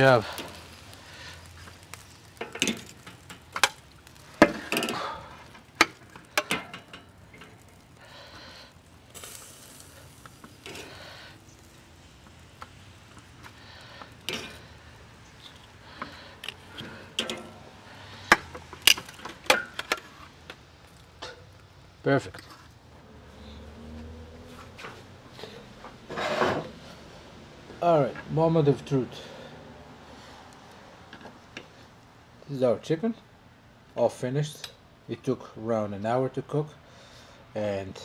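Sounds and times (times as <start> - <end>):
metal tongs clacking on grill grate: 1.7 - 7.8, 9.1 - 11.0, 12.6 - 14.8, 15.4 - 17.6, 18.2 - 21.5.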